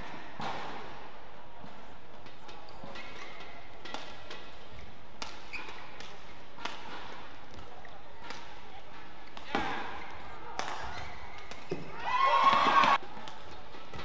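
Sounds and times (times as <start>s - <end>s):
racket striking shuttlecock: 2.2s - 11.9s.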